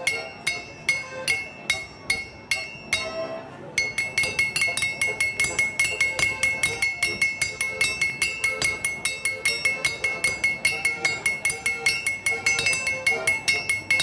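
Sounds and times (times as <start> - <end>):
hammers striking steel anvil: 0.0 - 14.0.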